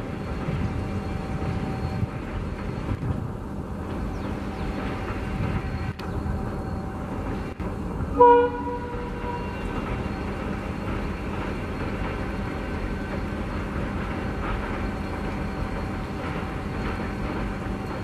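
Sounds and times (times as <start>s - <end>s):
diesel locomotive engine rumble: 0.0s - 18.0s
train wheel noise: 0.0s - 18.0s
train horn blast: 8.1s - 9.8s.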